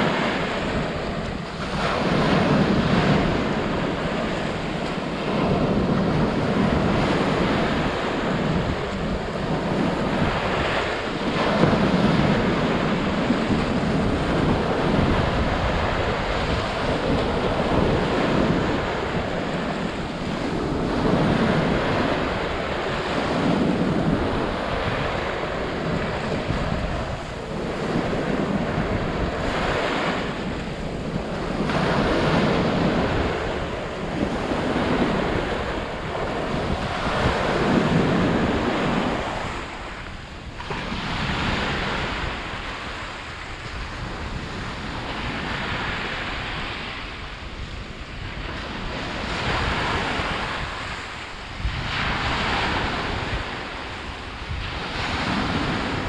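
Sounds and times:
waves breaking and washing in: 0:00.0 - 0:56.0
wind rumbling on microphone: 0:00.0 - 0:56.0.

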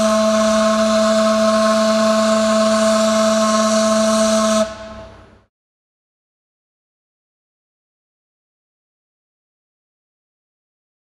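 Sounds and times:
ship's horn blast: 0:00.0 - 0:05.5.

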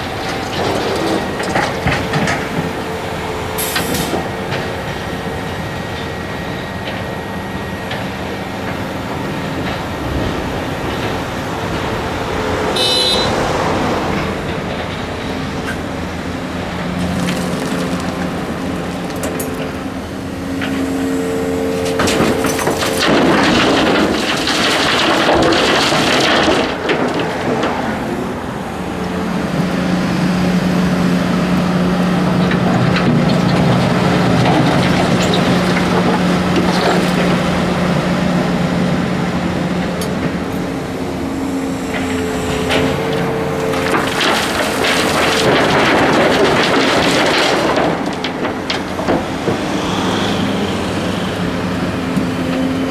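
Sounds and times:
excavator diesel engine: 0:00.0 - 0:52.9
bucket rattling and rumbling: 0:21.8 - 0:28.6, 0:42.6 - 0:50.9.

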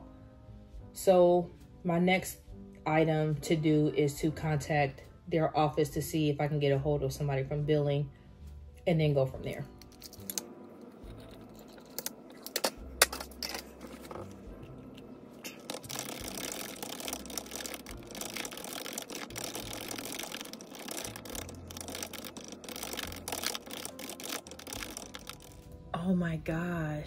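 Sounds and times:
computer keyboard typing: 0:15.5 - 0:25.6.

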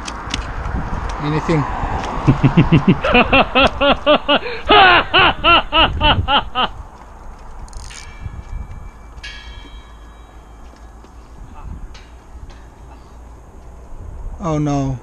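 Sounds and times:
man laughing: 0:02.2 - 0:06.8.

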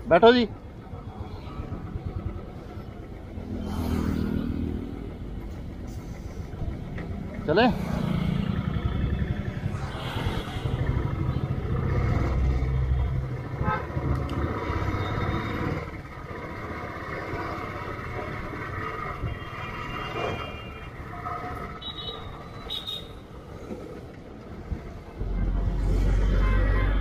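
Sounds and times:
traffic horns beeping: 0:13.6 - 0:14.1, 0:21.7 - 0:23.3, 0:26.1 - 0:27.0.

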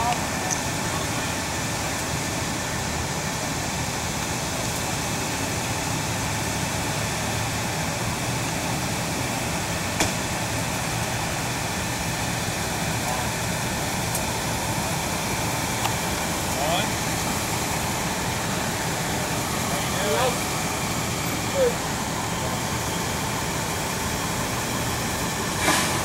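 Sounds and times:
vehicle engines idling: 0:00.0 - 0:26.0.

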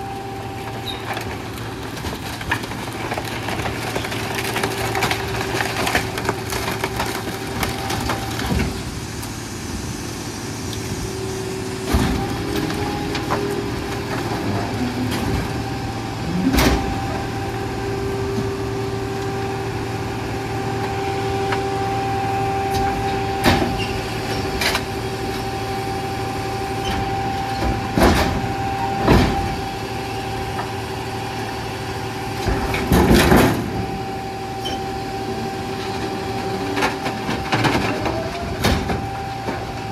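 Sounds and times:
diesel engine running: 0:00.0 - 0:39.9
wood cracking and banging: 0:00.7 - 0:08.9, 0:26.9 - 0:30.8, 0:32.4 - 0:34.1.

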